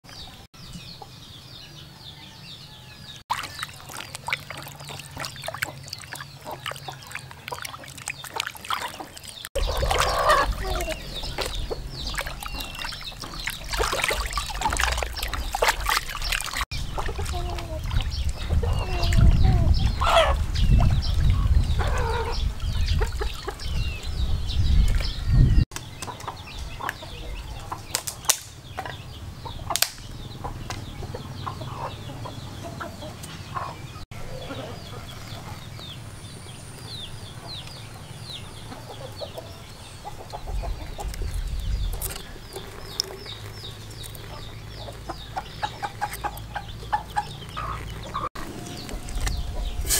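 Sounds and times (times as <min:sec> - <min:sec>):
water splashing in basin: 0:03.3 - 0:19.4, 0:41.0 - 0:49.3
fowl calling: 0:09.6 - 0:11.8.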